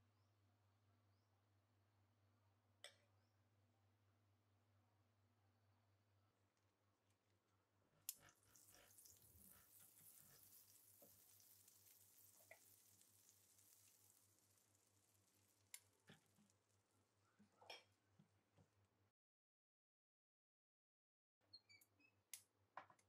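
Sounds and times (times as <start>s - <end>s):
butter sizzling on a grill plate: 8.1s - 16.7s.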